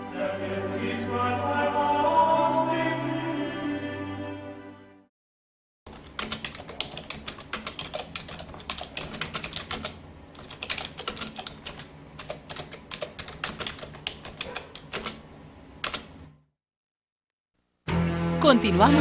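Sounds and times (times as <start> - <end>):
rapid keystroke clicks: 5.9 - 15.2, 15.8 - 16.1.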